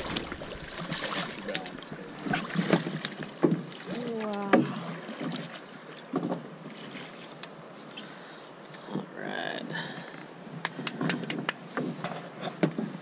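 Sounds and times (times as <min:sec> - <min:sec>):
knocks and clunks in a boat: 0:00.0 - 0:07.5, 0:10.6 - 0:13.0.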